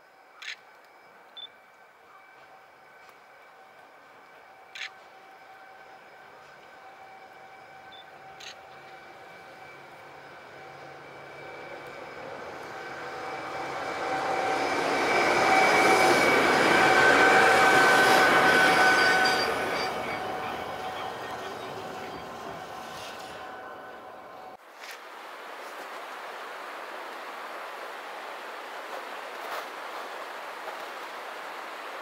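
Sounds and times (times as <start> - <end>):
steady whine: 0.0 - 24.6
electric railcar passing: 0.0 - 32.0.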